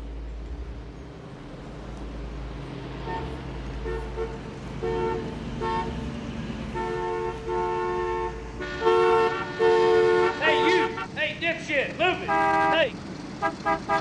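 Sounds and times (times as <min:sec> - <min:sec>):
low traffic rumble: 0:00.0 - 0:14.0
car horns honking: 0:03.0 - 0:14.0.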